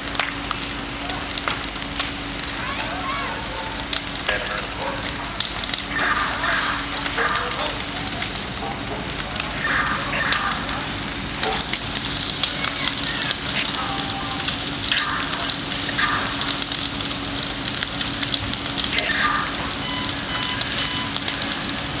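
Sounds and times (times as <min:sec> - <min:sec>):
fire crackling and hissing: 0:00.0 - 0:22.0.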